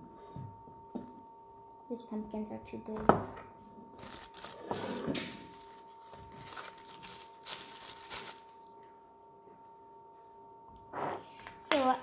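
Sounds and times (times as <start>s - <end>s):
tissue paper rustling and crinkling: 4.0s - 8.7s.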